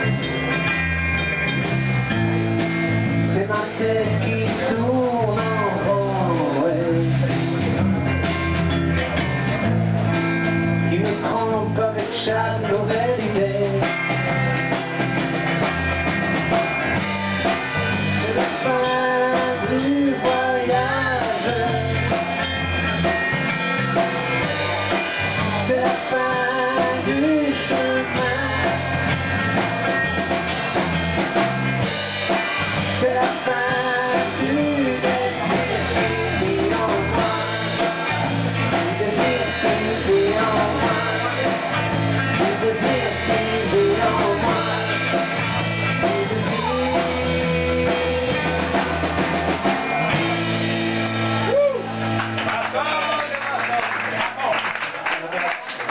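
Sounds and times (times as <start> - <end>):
live rock band playing: 0.0 - 55.9
person singing: 3.2 - 7.6, 10.9 - 14.2, 17.9 - 22.3, 24.6 - 29.0, 32.9 - 48.8.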